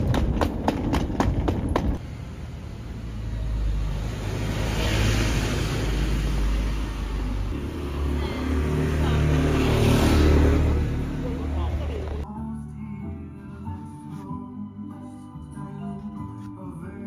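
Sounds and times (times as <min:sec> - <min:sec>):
traffic rumble: 0:00.0 - 0:12.3.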